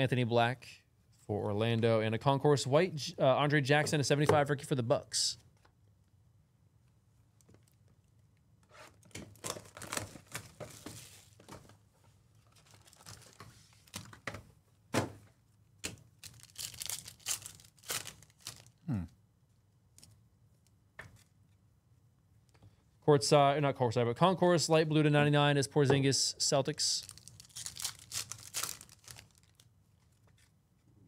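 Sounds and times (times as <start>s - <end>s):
cardboard and foil tearing: 12.5s - 13.4s, 16.2s - 18.8s, 27.0s - 29.6s.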